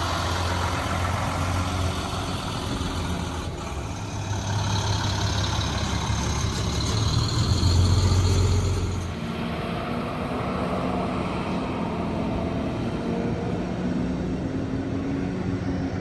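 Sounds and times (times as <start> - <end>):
bus engine pulling away: 0.0 - 16.0
distant bus engine drone: 0.0 - 16.0.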